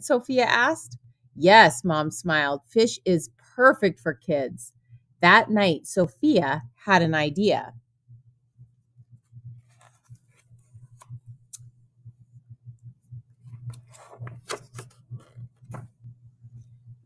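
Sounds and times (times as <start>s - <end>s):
low steady hum: 0.0s - 17.0s
book pages turning: 9.6s - 11.2s, 13.5s - 16.0s.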